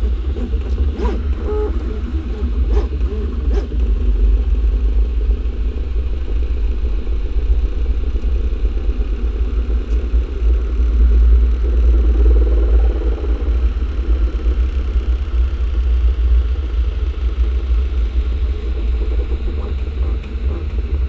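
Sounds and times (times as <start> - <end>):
stepper motors whirring: 0.0 - 4.0
steady low hum: 0.0 - 21.0.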